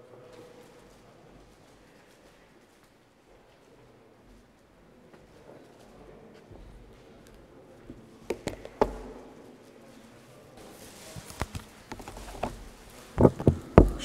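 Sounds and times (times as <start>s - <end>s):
faint rustle: 9.5s - 14.0s
thumps: 11.9s - 14.0s.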